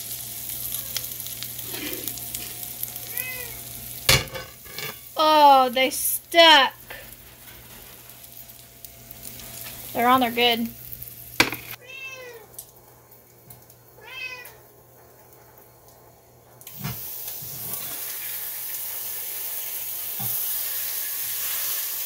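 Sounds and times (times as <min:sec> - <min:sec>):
hash browns sizzling in a pan: 0:00.0 - 0:11.8, 0:16.6 - 0:22.0.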